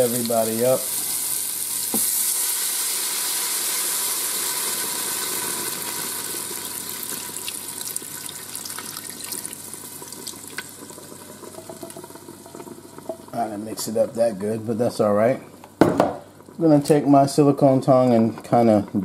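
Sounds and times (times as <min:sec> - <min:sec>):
liquid sizzling in hot pan: 0:00.0 - 0:17.8
liquid pouring: 0:04.7 - 0:13.4.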